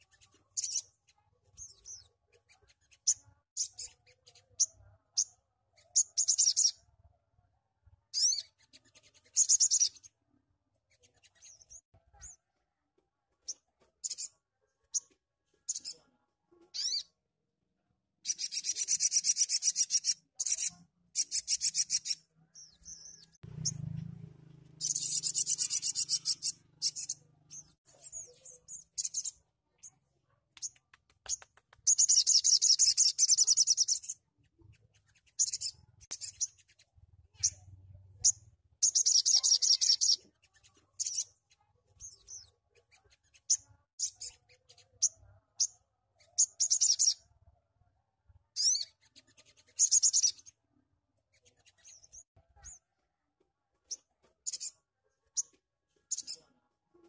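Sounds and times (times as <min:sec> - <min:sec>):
bird singing buzzy trills: 0:18.3 - 0:27.8.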